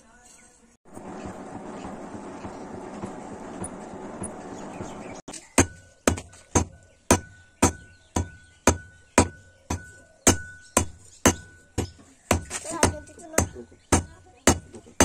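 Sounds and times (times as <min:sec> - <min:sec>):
steady noise: 0:00.9 - 0:05.2
hammer striking on anvil: 0:01.0 - 0:14.6.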